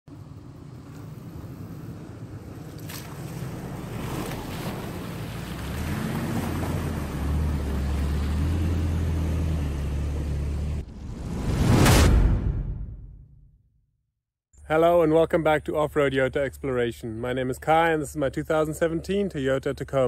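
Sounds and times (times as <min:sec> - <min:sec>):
truck engine hum: 0:00.1 - 0:11.3
water splashing around tyres: 0:00.2 - 0:08.8.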